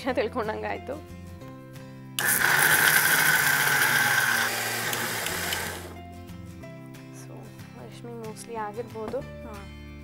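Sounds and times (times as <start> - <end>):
mixer grinder motor grinding: 2.2 - 6.0.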